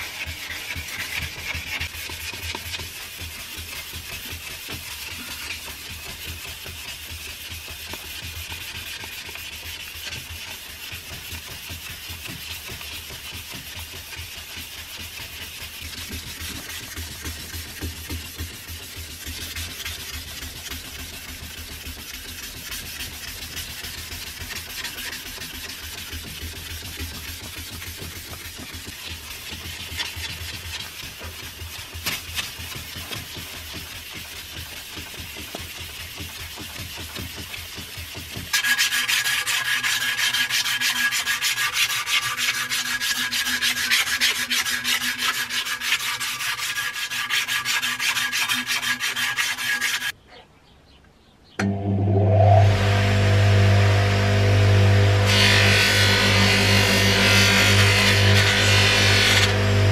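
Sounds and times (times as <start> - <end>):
abrasive rubbing on steel blade: 38.5 - 50.2, 54.8 - 59.9.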